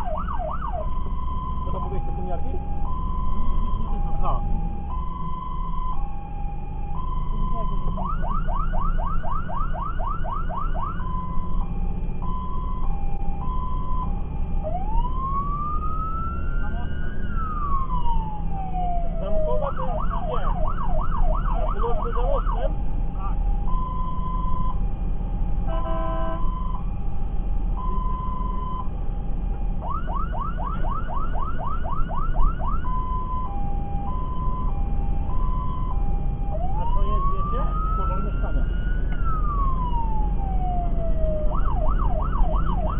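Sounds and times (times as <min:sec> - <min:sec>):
fire engine siren: 0:00.0 - 0:42.9
low rumble of moving truck: 0:00.0 - 0:42.9
burst of several horn tones: 0:25.7 - 0:26.5.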